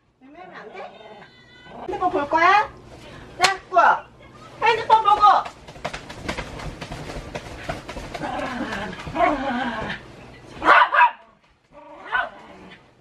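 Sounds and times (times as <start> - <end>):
slaps and pats on bedding: 5.0 - 9.2
dog barking: 10.6 - 11.4.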